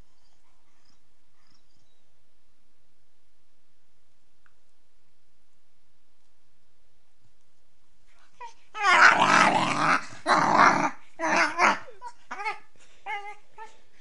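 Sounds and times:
puppy growling: 8.4 - 13.8
puppy whining and yipping: 11.2 - 13.8.

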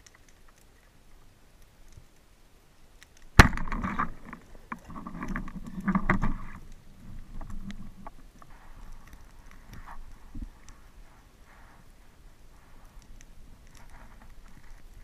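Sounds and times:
speargun firing underwater: 3.4 - 4.2.

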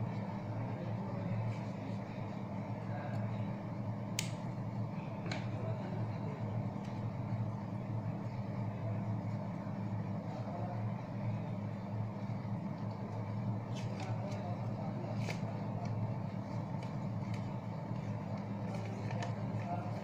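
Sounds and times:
paper being handled: 13.6 - 20.0.

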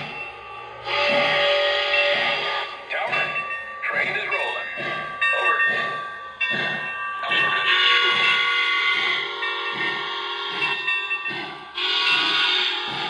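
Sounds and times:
model train steam chuffs: 0.0 - 13.0
steam whistle: 0.8 - 2.8, 7.7 - 10.7, 11.8 - 13.0.

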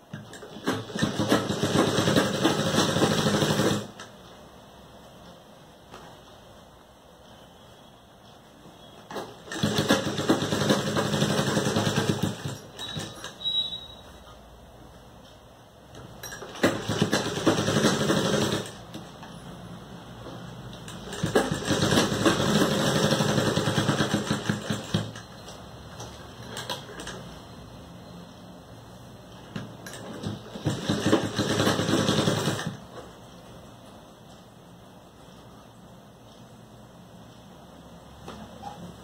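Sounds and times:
sewing machine stitching: 0.1 - 4.1, 9.1 - 13.7, 16.0 - 19.2, 20.8 - 27.3, 29.5 - 32.9.

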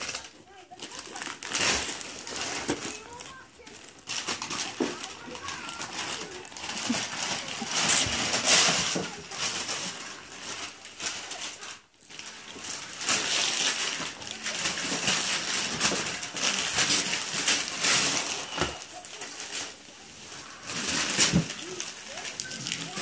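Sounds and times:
wrapping paper tearing and crinkling: 0.0 - 23.0.

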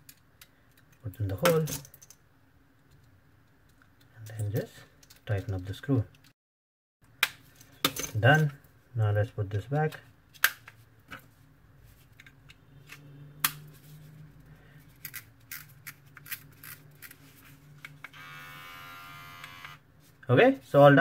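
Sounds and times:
beard trimmer motor buzzing: 18.1 - 19.8.

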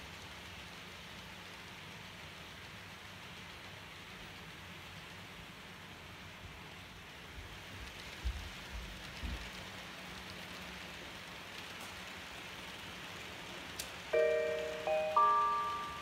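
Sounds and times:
model train rolling on track: 0.0 - 16.0
ringing chime: 14.2 - 16.0.

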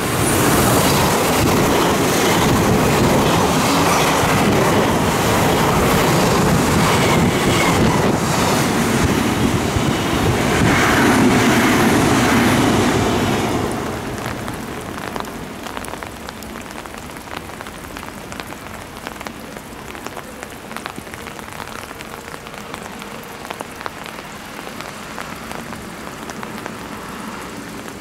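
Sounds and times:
steady rain: 0.0 - 28.0
raindrops clicking close by: 13.6 - 28.0.

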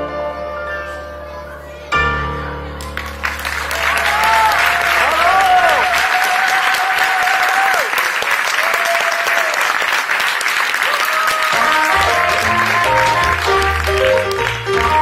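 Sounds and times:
audience applauding: 2.8 - 15.0
music with bass line: 11.6 - 15.0.

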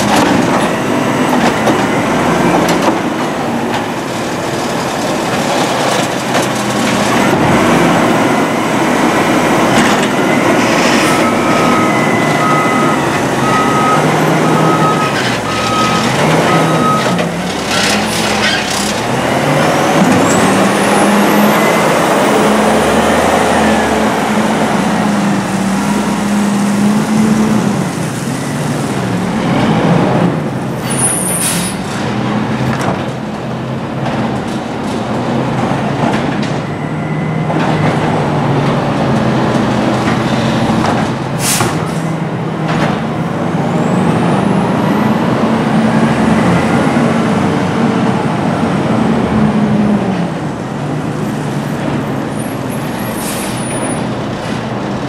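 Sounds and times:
garbage truck engine revving: 0.0 - 30.4
evenly spaced beeps: 10.2 - 15.0
air brakes hissing: 41.4 - 42.1, 53.0 - 53.8.

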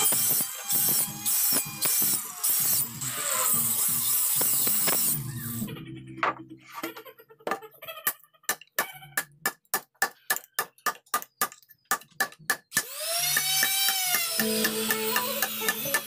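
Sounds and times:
music: 5.6 - 6.8, 14.4 - 16.0.

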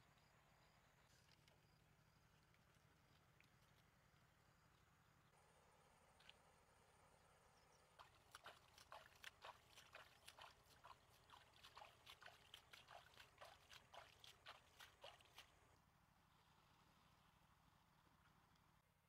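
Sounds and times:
faint water splashes: 7.7 - 15.8.

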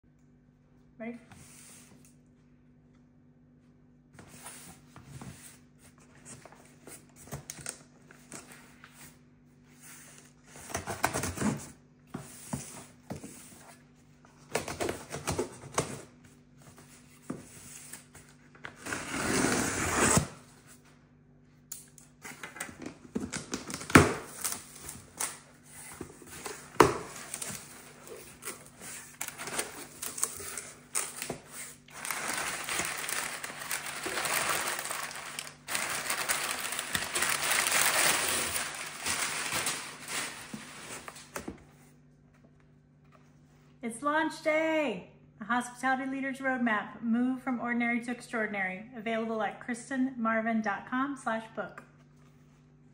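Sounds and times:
packing tape tearing: 22.3 - 25.5, 26.3 - 41.4
packing paper rustling: 22.3 - 41.6.

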